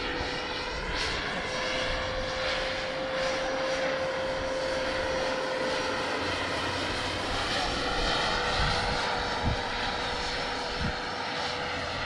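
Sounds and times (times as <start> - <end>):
model helicopter whining: 0.0 - 12.0.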